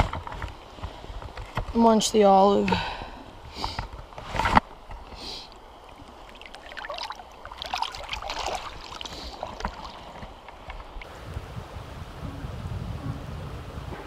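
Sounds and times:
water sloshing and splashing: 3.3 - 11.1.

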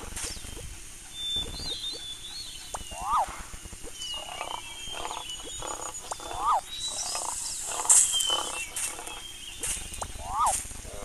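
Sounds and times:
pulsed animal calls: 0.0 - 11.0
faint high chirps: 0.2 - 10.6
rising and falling animal call: 2.9 - 3.5, 4.2 - 9.2, 10.2 - 11.0.

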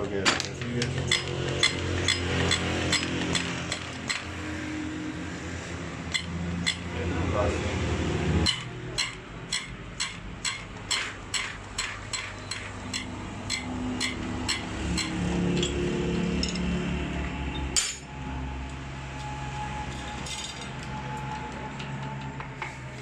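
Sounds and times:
spanner clicking on metal: 0.8 - 4.3, 6.1 - 6.9, 8.4 - 16.7.

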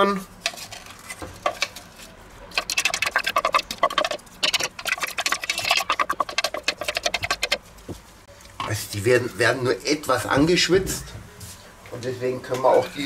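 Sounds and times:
onion crackling in hot butter: 0.4 - 8.1
spatula scraping plastic bowl: 2.5 - 7.6.

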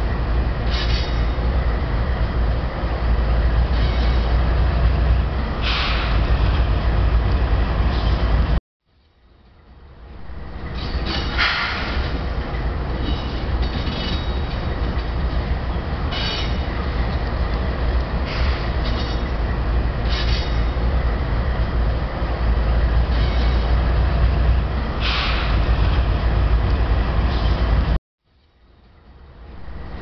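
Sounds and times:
locomotive engine and rail rumble: 0.0 - 30.0
wheel squeal: 16.1 - 16.7, 23.1 - 23.8.

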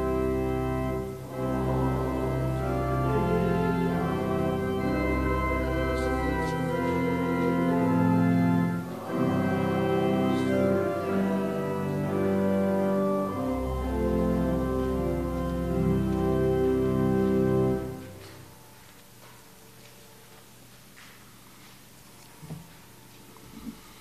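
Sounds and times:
organ playing slow chords: 0.0 - 18.8
room echo: 0.0 - 24.0.

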